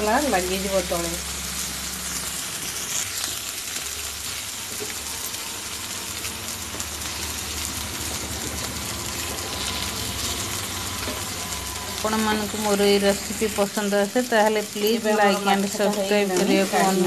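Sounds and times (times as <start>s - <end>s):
fish sizzling in a frying pan: 0.0s - 17.0s.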